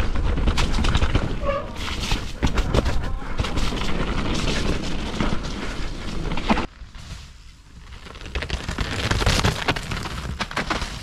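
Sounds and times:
bike tyres rolling over mud: 0.0 - 11.0.

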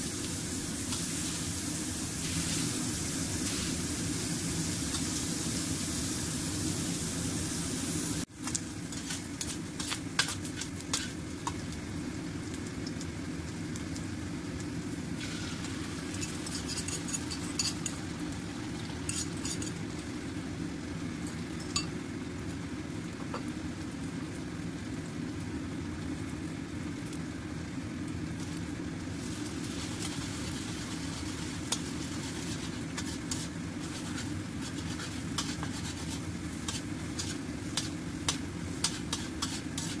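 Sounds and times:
low sizzle: 0.0 - 40.0
metal spatula scraping a wok: 8.9 - 11.2, 16.2 - 17.9, 29.9 - 40.0.

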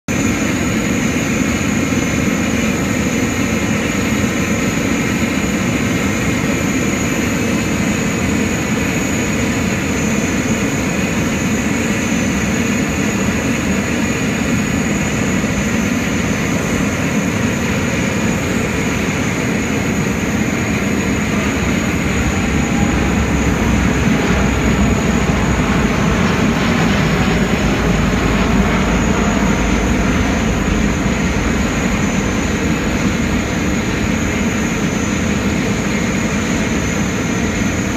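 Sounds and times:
jet airliner rumble overhead: 0.1 - 37.9.

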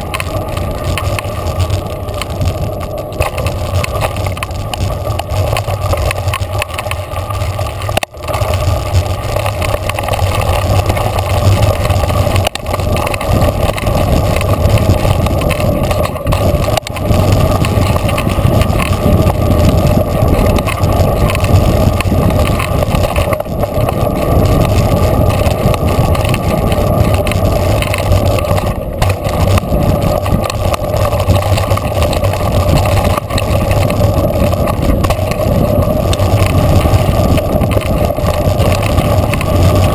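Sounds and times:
low rumble: 0.0 - 39.9
tyre and wind rush: 0.0 - 39.9.

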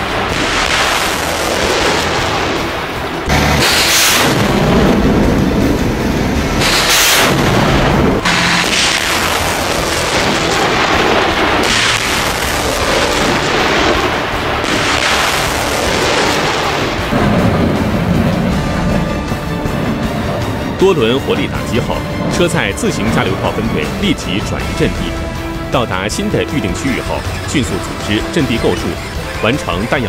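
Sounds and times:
rockets launching in rushing blasts: 0.0 - 29.4
continuous rumble: 0.0 - 30.0.

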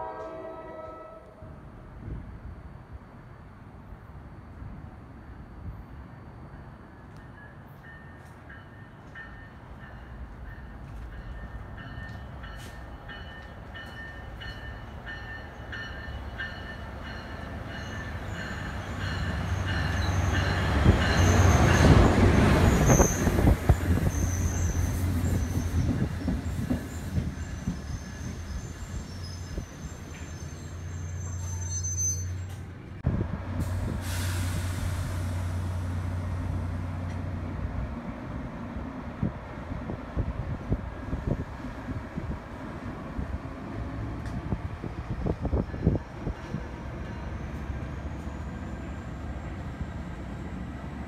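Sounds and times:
train low drone: 0.0 - 51.0
train passing and braking: 0.0 - 51.0
wheel and brake squeal: 22.6 - 32.6.

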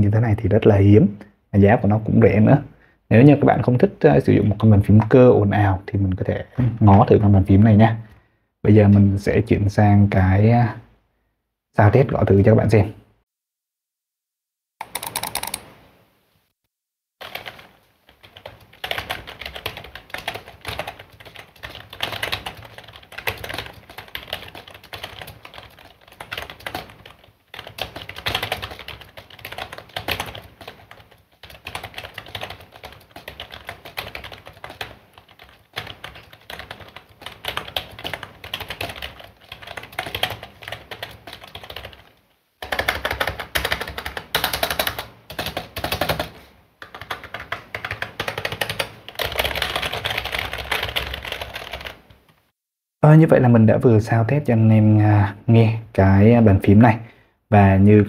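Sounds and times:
fast keyboard typing: 14.8 - 15.7, 17.2 - 52.1.

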